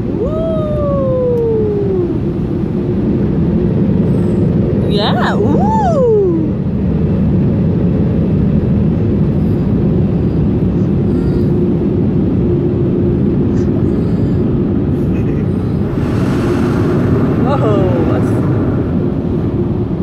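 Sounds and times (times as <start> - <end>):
steady hum: 0.0 - 20.0
air-dryer blowers rushing: 13.8 - 20.0.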